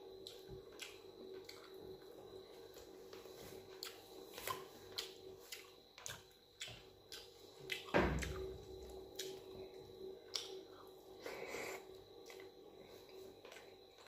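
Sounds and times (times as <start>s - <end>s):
open-mouthed chewing: 0.1s - 1.9s, 3.6s - 9.6s, 10.3s - 12.6s
thump: 7.9s - 8.4s.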